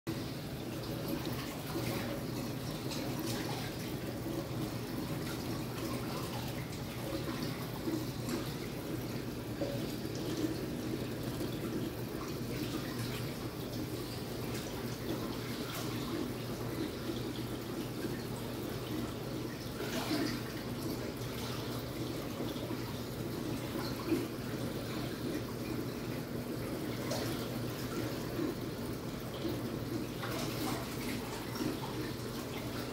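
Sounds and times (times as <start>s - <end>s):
water running and trickling: 0.1s - 32.9s.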